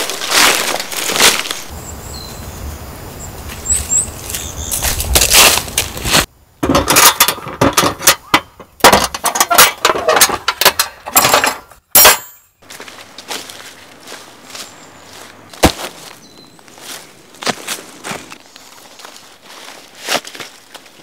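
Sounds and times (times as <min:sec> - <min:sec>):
footsteps crunching dry leaves: 0:00.0 - 0:06.3, 0:12.6 - 0:21.0
metal tent pegs clinking: 0:06.6 - 0:12.5.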